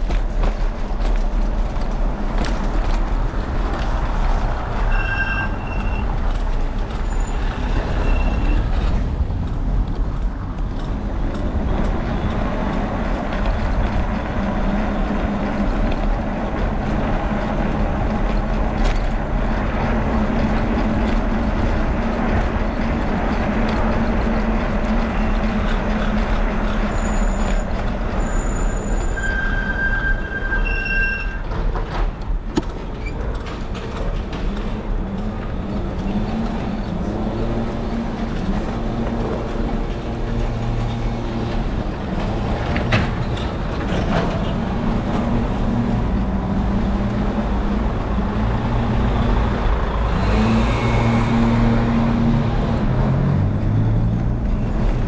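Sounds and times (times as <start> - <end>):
wind rumble on microphone: 0.0 - 29.1
motor traffic hum: 0.0 - 29.7, 31.4 - 55.0
high-pitched squeals: 4.8 - 6.2, 6.9 - 8.9, 26.8 - 31.6.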